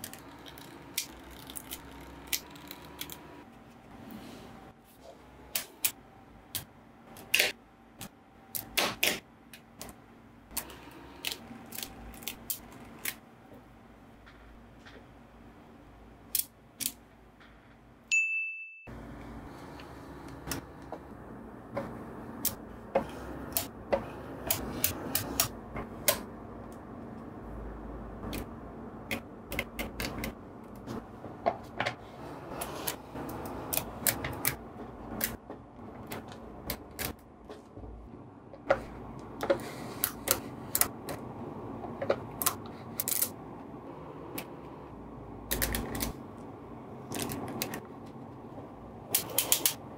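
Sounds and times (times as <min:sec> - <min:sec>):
short high ding: 0:18.1 - 0:18.9.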